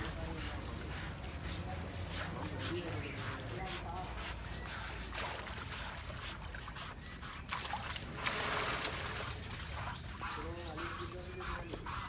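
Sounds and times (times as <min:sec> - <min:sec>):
water splashing and pouring: 0:07.5 - 0:10.1.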